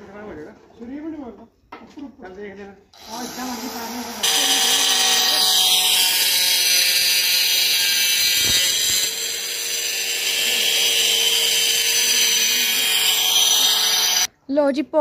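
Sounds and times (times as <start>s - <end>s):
power tool grinding masonry: 3.0s - 14.3s.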